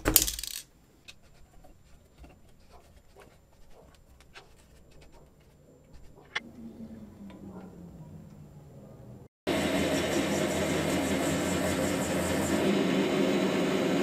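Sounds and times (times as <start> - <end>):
small metal parts clicking: 0.0 - 1.2
faint low hum falling in pitch: 6.4 - 9.3.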